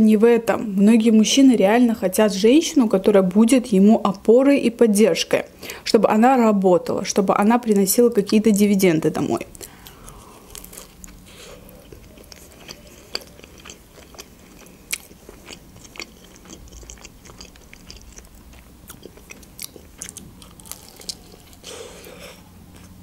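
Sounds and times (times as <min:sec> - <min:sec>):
close chewing mouth sounds: 0:09.4 - 0:23.0
biting into a wrap: 0:09.8 - 0:22.2.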